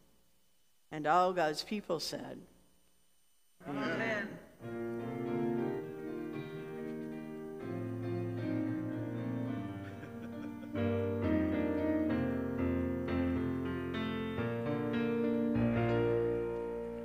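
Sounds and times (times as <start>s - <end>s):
piano playing slow chords: 4.6s - 17.0s.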